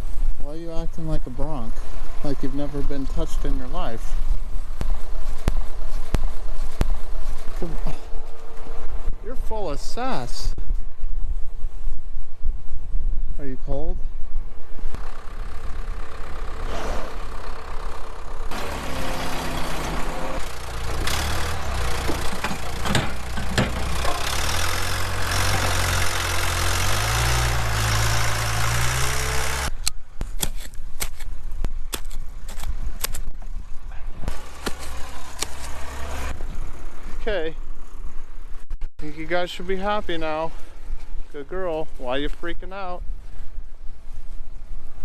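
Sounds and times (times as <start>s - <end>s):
wind noise: 0.0s - 15.0s
vehicle engine running: 1.0s - 10.2s, 14.4s - 29.9s, 33.8s - 42.2s
sharp clicks and knocks: 21.0s - 26.2s.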